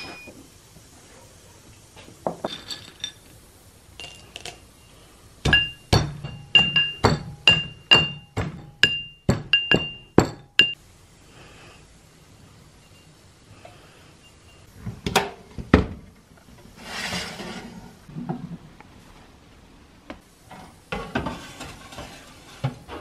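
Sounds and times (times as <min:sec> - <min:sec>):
metal pestle pounding in mortar: 0:05.4 - 0:10.8.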